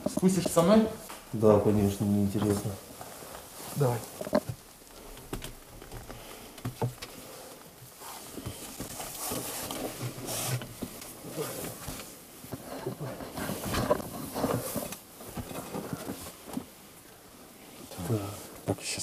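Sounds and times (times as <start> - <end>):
clothing rustling: 0.0 - 18.6
footsteps on wooden ladder rungs: 2.3 - 16.8.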